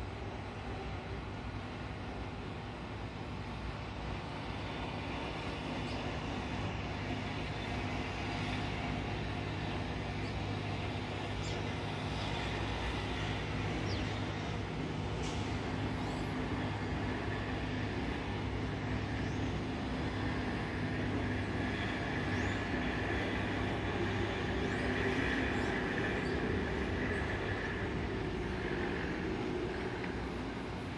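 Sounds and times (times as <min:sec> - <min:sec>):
jet engines humming and whining: 0:00.0 - 0:30.9.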